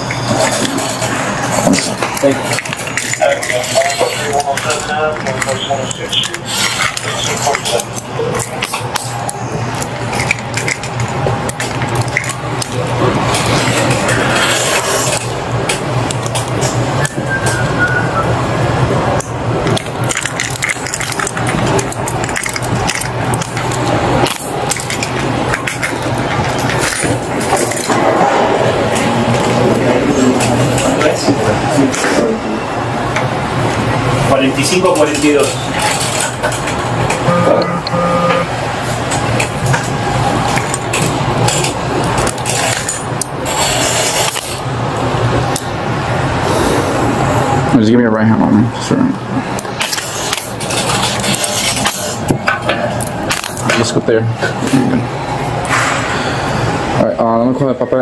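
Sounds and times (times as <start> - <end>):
low steady hum: 0.0 - 49.8
handcuffs clicking and rattling: 19.7 - 26.0.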